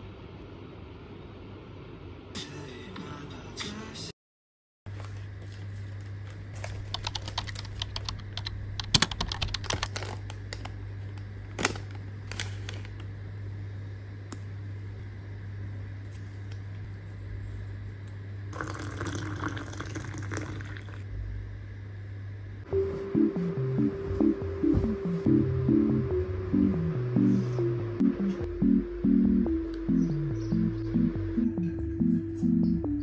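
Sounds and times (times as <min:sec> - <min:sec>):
steady low hum: 0:04.9 - 0:33.0
tea bags crinkling: 0:09.6 - 0:13.1
water poured into ceramic mug: 0:18.6 - 0:21.0.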